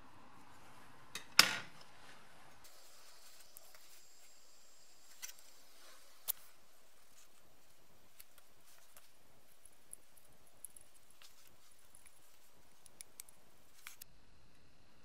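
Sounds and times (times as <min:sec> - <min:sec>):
scissors cutting felt: 0:06.2 - 0:14.0.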